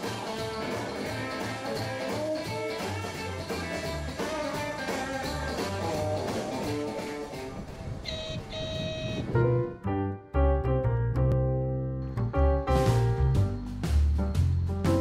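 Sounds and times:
electric guitar: 0:00.0 - 0:08.5
drums: 0:00.0 - 0:08.6, 0:12.6 - 0:15.0
upright bass: 0:00.0 - 0:15.0.

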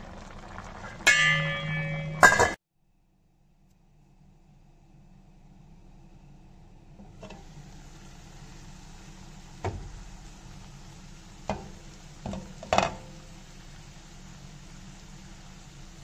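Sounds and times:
food sizzling in a pan: 0:00.0 - 0:02.5, 0:07.3 - 0:16.0
cookware knocking and clinking: 0:01.1 - 0:02.6, 0:12.3 - 0:13.1.

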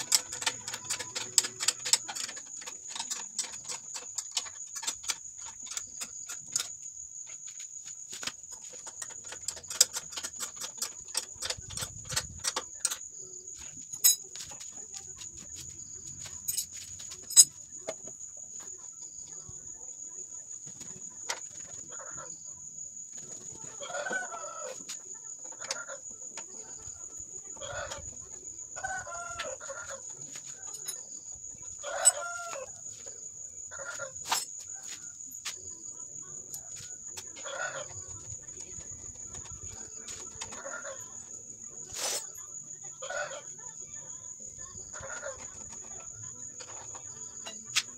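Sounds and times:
metal clicks and taps from tools: 0:00.0 - 0:06.8
high insect trill: 0:00.0 - 0:47.9.

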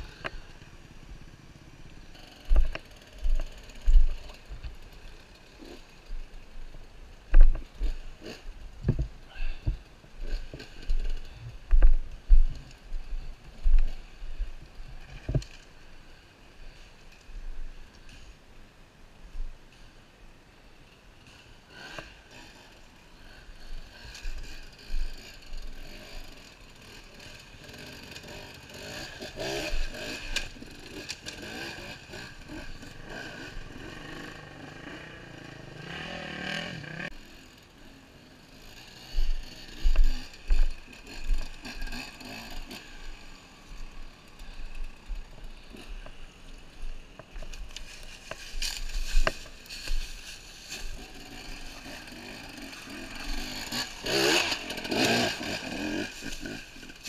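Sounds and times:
dirt bike engine revving: 0:00.0 - 0:06.4, 0:07.6 - 0:08.7, 0:21.2 - 0:46.6, 0:47.6 - 0:57.0.

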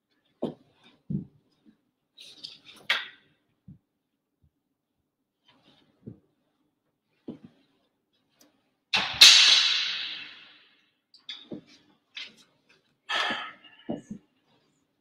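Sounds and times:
short knocks and shuffles: 0:07.2 - 0:07.8, 0:11.3 - 0:12.5, 0:13.1 - 0:14.7.

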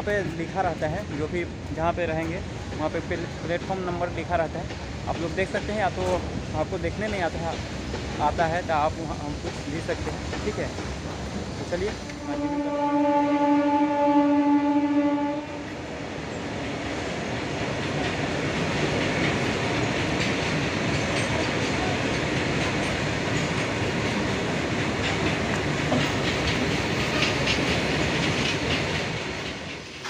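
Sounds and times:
wheels clacking over rail joints: 0:00.0 - 0:12.6, 0:16.1 - 0:30.0
train horn: 0:12.2 - 0:15.8.

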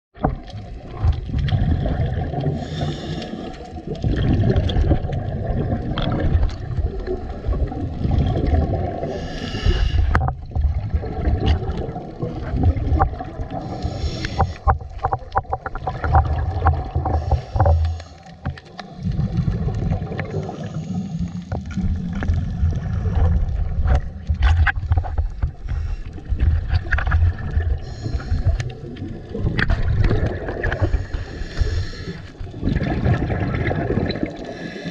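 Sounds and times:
underwater low rumble: 0:00.2 - 0:34.9
bubbly hiss: 0:01.6 - 0:10.2, 0:10.8 - 0:14.7, 0:16.4 - 0:18.3.

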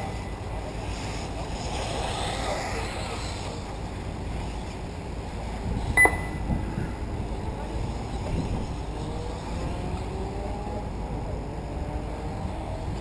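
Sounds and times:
wind noise: 0:00.0 - 0:13.0
electronic beep: 0:06.0 - 0:06.7.

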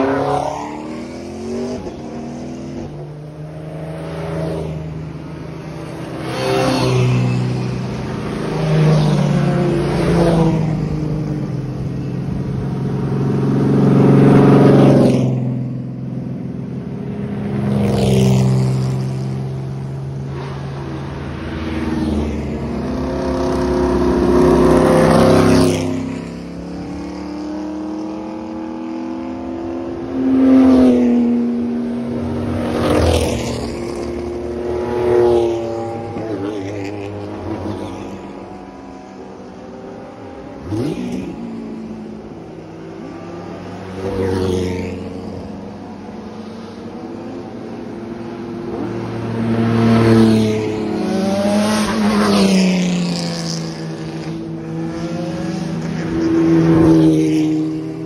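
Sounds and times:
race car engines passing by: 0:00.0 - 0:58.0
engine revving: 0:17.4 - 0:39.0, 0:39.7 - 0:45.6, 0:48.7 - 0:58.0.

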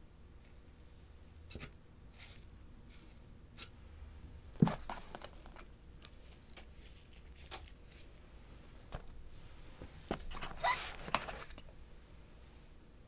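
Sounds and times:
cardboard taps and rustles: 0:04.6 - 0:05.7.

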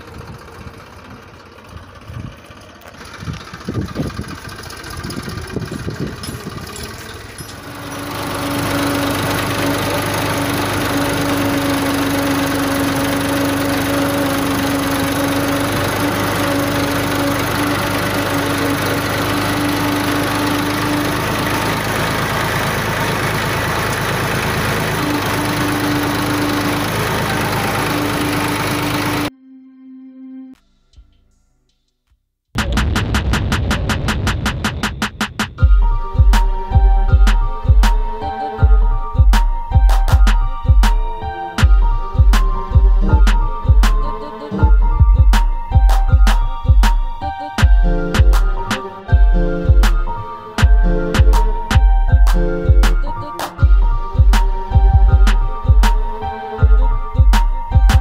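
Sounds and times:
diesel tractor engine running: 0:00.0 - 0:29.3, 0:32.6 - 0:58.0
steady whine: 0:00.0 - 0:29.3.

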